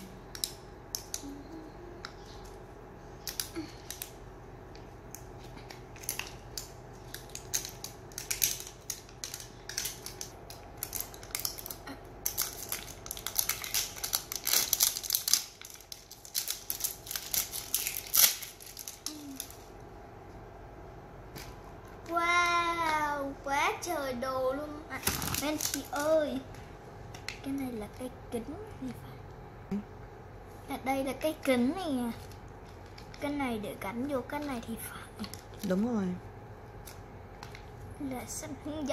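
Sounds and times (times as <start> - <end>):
plastic wrapping crinkling: 3.2 - 19.8, 24.9 - 27.4, 32.1 - 36.0, 36.6 - 37.9.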